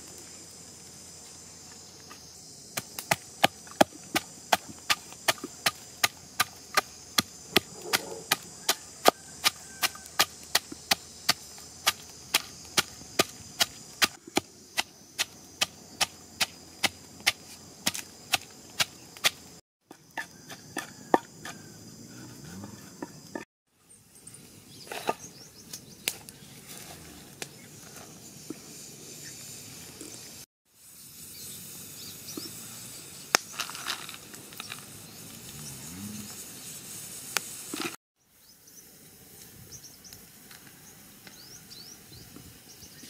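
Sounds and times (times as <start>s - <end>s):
pestle pounding in wooden mortar: 2.8s - 21.6s.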